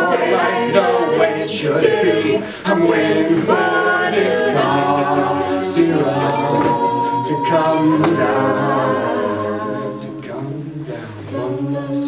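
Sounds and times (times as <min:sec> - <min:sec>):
backing voices holding chords: 0:00.0 - 0:12.0
male soloist singing: 0:05.7 - 0:08.8.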